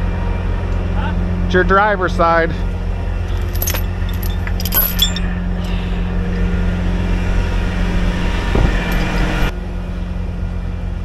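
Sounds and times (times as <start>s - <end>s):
diesel engine idling: 0.0s - 11.0s
light metallic clinks: 3.3s - 5.8s.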